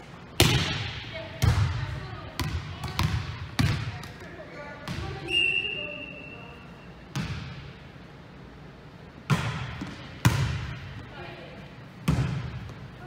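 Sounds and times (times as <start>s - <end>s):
volleyball hits echoing: 0.3s - 5.4s, 7.1s - 7.9s, 9.2s - 11.1s, 12.0s - 13.0s.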